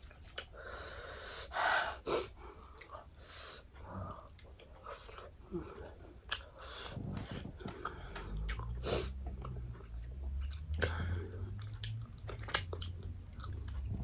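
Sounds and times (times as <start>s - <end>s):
chewing and biting: 4.2s - 14.0s.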